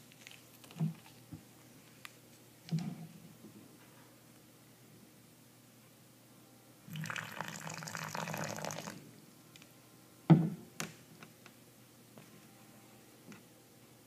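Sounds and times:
water pouring into a can: 0:06.9 - 0:09.0.

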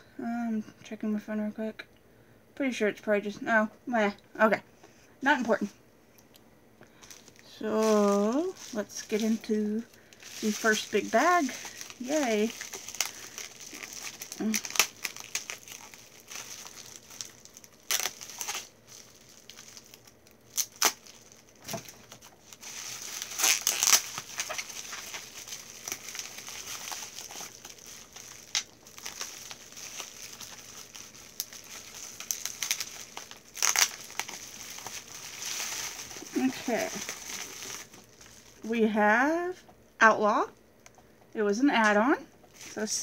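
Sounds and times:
packaging crinkling and rustling: 0:06.8 - 0:38.7, 0:42.4 - 0:43.0
sharp crackles: 0:06.9 - 0:38.6.

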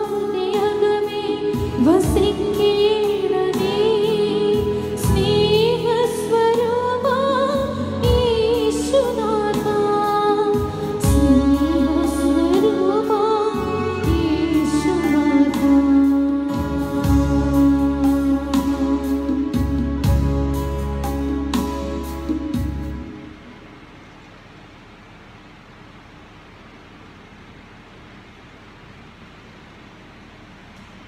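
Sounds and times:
person singing a hymn with vibrato: 0:00.0 - 0:20.5
sustained instrumental accompaniment: 0:00.0 - 0:23.7.

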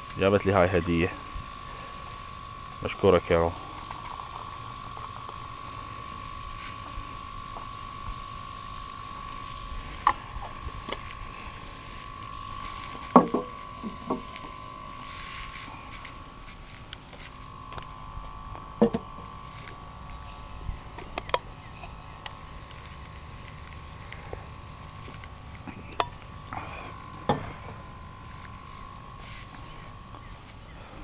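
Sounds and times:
kettle and mugs knocking on table: 0:13.2 - 0:13.5.

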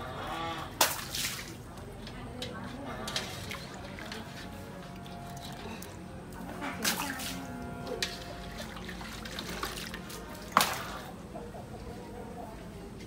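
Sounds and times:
water splashing and draining: 0:00.7 - 0:01.9, 0:03.1 - 0:11.2.

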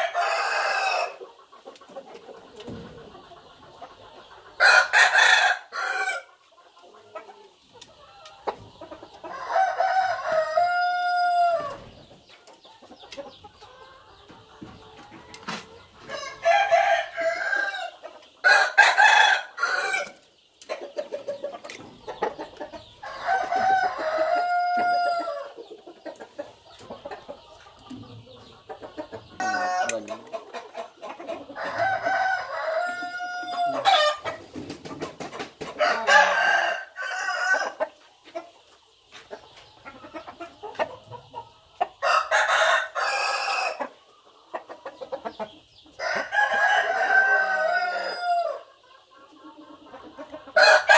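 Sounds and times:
roosters crowing: 0:00.0 - 0:01.2, 0:04.6 - 0:06.3, 0:09.2 - 0:12.0, 0:15.4 - 0:20.2, 0:23.0 - 0:25.6, 0:29.0 - 0:34.6, 0:35.7 - 0:38.0, 0:41.9 - 0:44.0, 0:46.0 - 0:48.8, 0:50.5 - 0:50.9.

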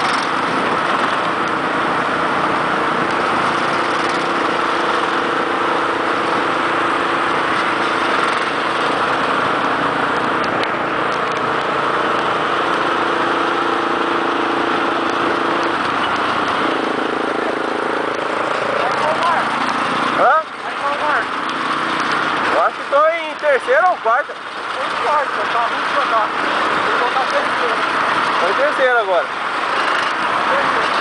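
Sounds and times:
wind noise: 0:00.0 - 0:18.5
motorcycle engine running: 0:00.0 - 0:31.0
road noise: 0:00.0 - 0:31.0.

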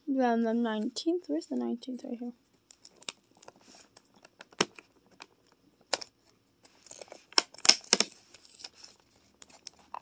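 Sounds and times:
cardboard tearing: 0:06.7 - 0:10.0.

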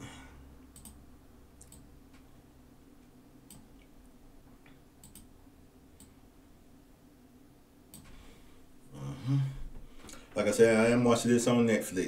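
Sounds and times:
low room hum: 0:00.0 - 0:12.0
computer mouse clicks: 0:00.7 - 0:01.0, 0:01.6 - 0:02.2, 0:03.5 - 0:03.9, 0:05.0 - 0:05.3.

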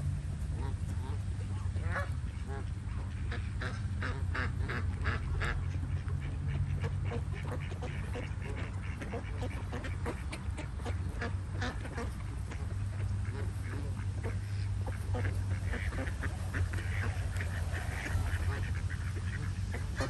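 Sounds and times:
ducks quacking: 0:00.0 - 0:20.0
geese honking: 0:00.1 - 0:20.0
low rumble: 0:12.1 - 0:20.0.

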